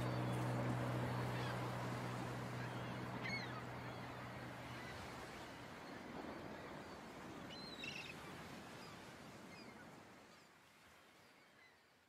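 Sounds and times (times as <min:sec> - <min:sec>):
steady outdoor hiss: 0:00.0 - 0:06.6.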